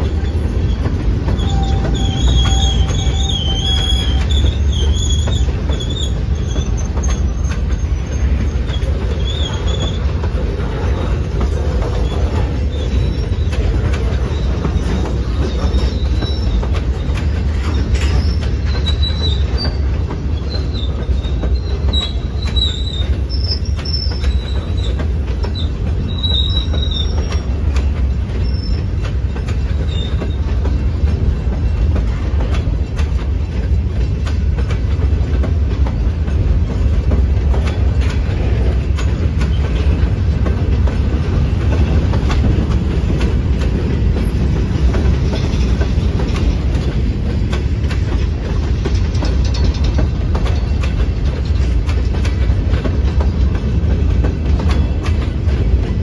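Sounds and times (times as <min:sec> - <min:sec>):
train wheels rumbling on rails: 0:00.0 - 0:56.0
high metal squeals: 0:00.2 - 0:10.1.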